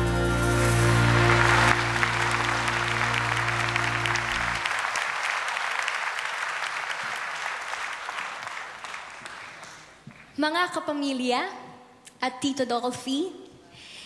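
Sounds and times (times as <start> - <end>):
music held chord: 0.0 - 4.7
audience applause: 0.5 - 10.0.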